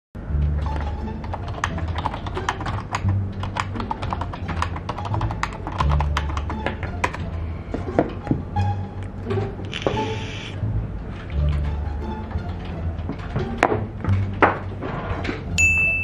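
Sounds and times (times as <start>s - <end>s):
background music with bass line: 0.2s - 15.6s
fast keyboard typing: 0.7s - 7.2s.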